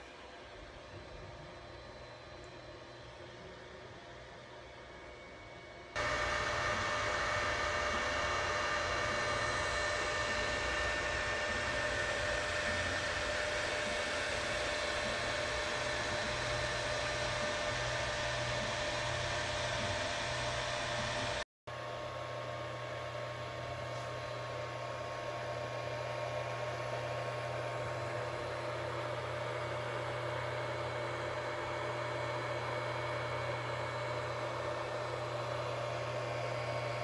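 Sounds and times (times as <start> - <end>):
faint steady tones: 6.0 - 21.4
low hum: 6.0 - 21.4
printer fan noise: 6.0 - 37.0.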